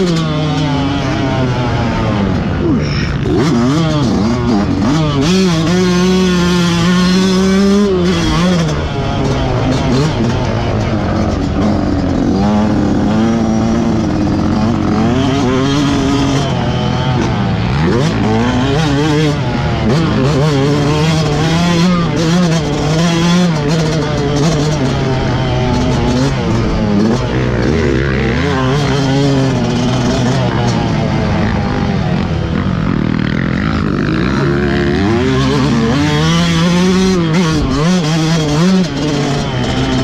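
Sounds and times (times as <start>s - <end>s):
two-stroke motorcycle engine revving: 0.0s - 40.0s.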